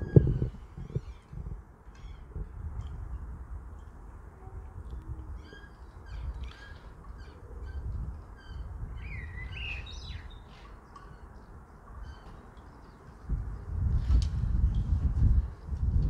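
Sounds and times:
wind rumbling on microphone: 0.0 - 16.0
small birds chirping: 5.4 - 13.6.

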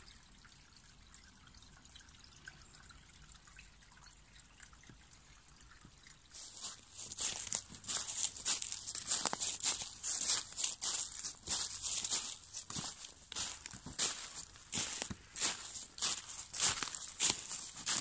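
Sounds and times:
stream trickling over stones: 0.0 - 18.0
dry leaves crunching: 6.4 - 18.0.

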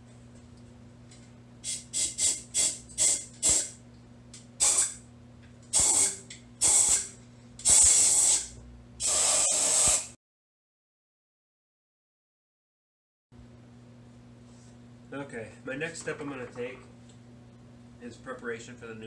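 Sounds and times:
air blow gun hissing: 1.6 - 3.8, 4.6 - 5.0, 5.7 - 10.2.

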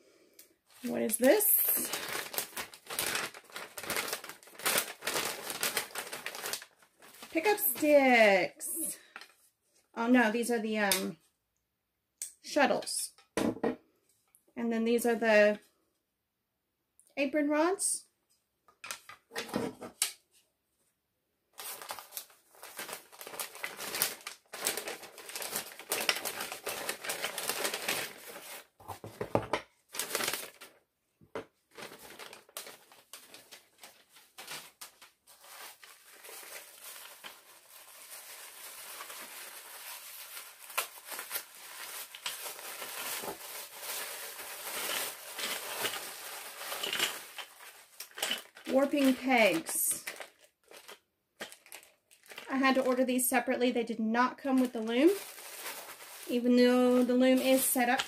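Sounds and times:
paper and plastic crinkling: 0.7 - 8.4, 21.6 - 53.1, 54.4 - 58.0.

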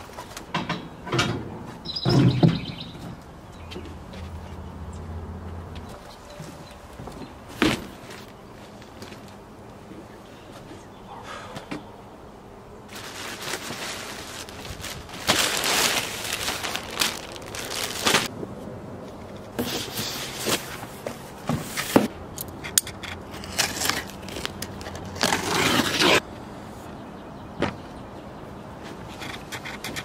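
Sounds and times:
plastic packaging crinkling: 12.9 - 18.3
cardboard boxes scraping and knocking: 25.2 - 26.2.

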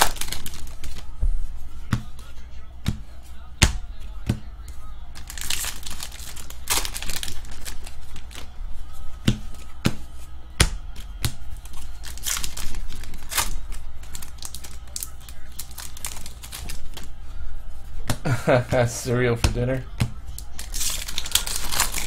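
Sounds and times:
card pack wrappers crinkling and ripping: 0.0 - 1.1, 5.2 - 8.6, 11.5 - 17.2, 20.3 - 22.0.

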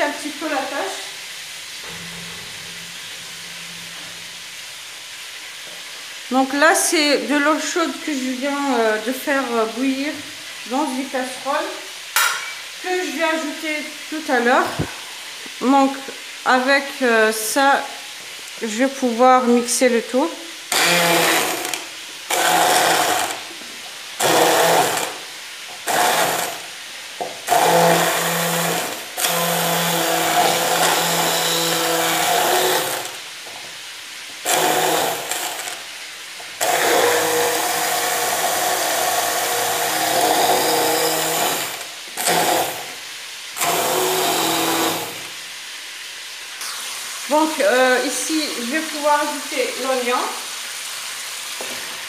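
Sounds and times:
hand blender running: 20.7 - 23.6, 24.2 - 26.7, 27.4 - 33.3, 34.4 - 35.9, 36.6 - 43.0, 43.6 - 45.4.

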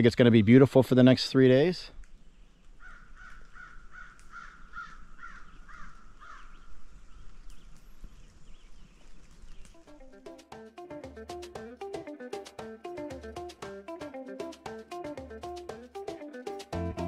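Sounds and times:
acoustic guitar music: 9.8 - 17.0.

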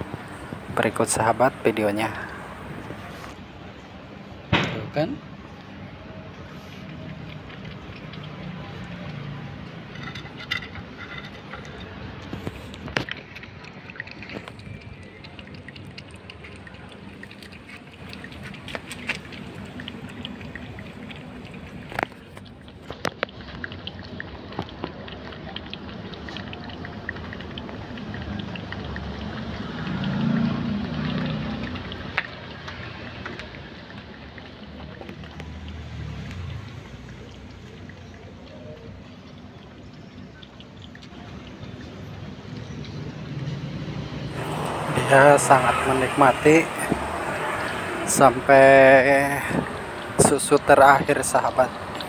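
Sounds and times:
cat lapping milk: 6.4 - 9.8, 11.6 - 38.9, 44.3 - 52.0.

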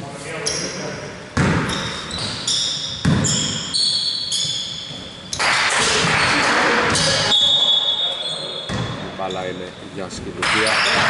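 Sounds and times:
high squeaking: 1.6 - 11.0
basketball bouncing on hardwood: 3.0 - 3.4.

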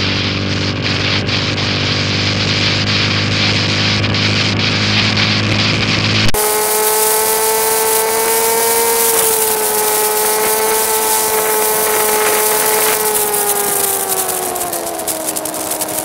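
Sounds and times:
motorcycle engine at high revs: 0.0 - 16.0
hiss of wind and rain spray: 0.1 - 16.0.

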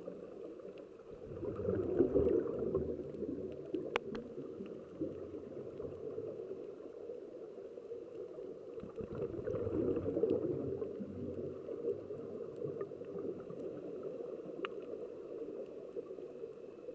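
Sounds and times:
faint clicks: 0.0 - 16.9
underwater exhaust bubbles: 0.0 - 16.9.

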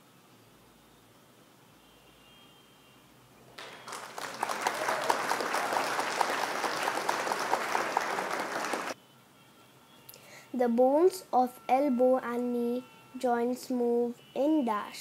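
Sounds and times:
crowd clapping: 3.5 - 9.0.

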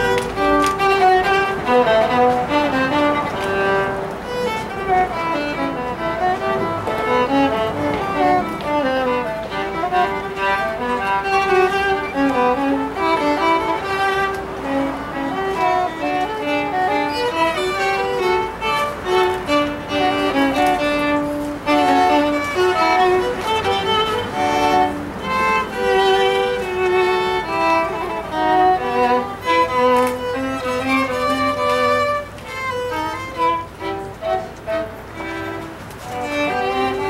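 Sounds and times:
violin duet: 0.0 - 37.0.

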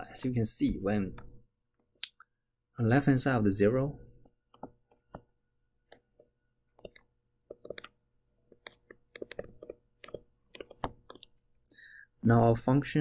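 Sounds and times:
stylus tapping on tablet: 4.2 - 11.5.

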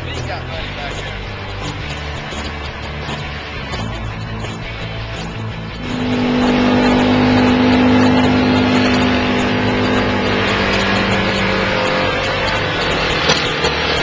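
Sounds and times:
off-road vehicle engine accelerating: 0.0 - 14.0
tyres on dirt: 0.0 - 14.0.

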